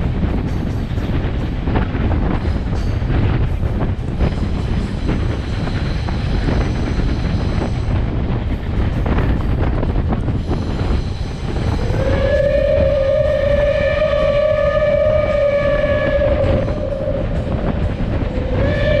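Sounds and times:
passenger cars rolling on rails: 0.0 - 19.0
steam locomotive whistle: 10.5 - 19.0.

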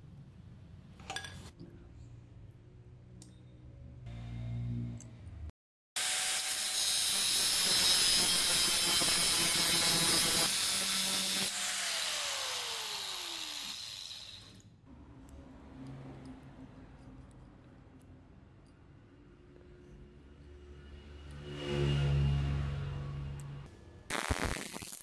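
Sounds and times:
angle grinder cutting metal: 6.0 - 14.6
grinder winding down whine: 6.0 - 14.6.

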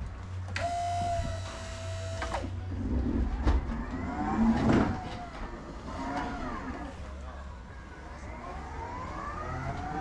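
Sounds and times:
electric motor whine: 0.5 - 2.5.

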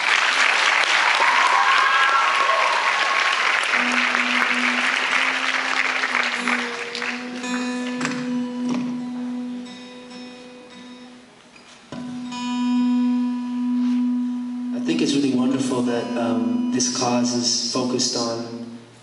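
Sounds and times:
audience applause: 0.0 - 8.3
acoustic guitar notes: 3.7 - 19.0
guitar strums: 3.8 - 19.0.

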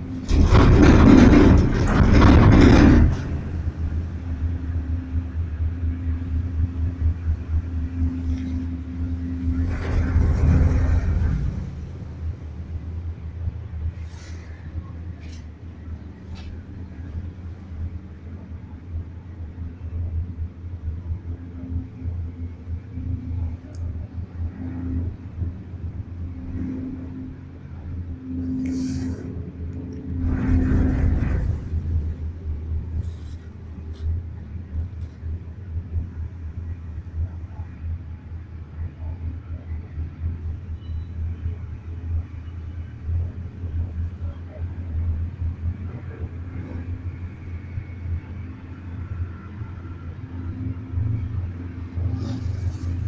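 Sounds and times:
cable car cabin rumble: 0.0 - 53.0
faint hum: 0.0 - 53.0.

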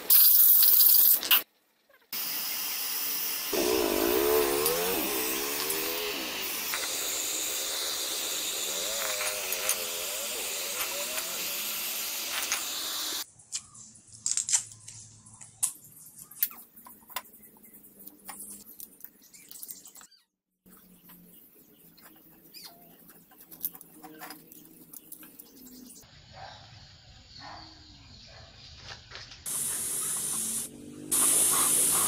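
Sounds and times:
heat gun blowing air: 2.2 - 13.2, 29.5 - 32.0.

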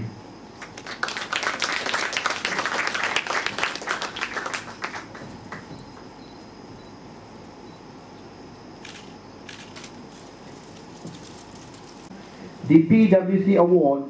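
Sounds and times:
audience clapping: 0.6 - 6.1.

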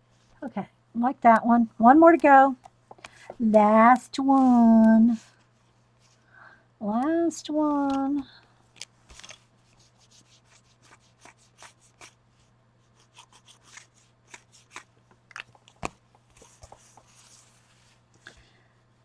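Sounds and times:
low steady hum: 0.0 - 19.0
clicks and taps of craft tools: 2.6 - 4.5
paper rustling: 9.1 - 12.2.

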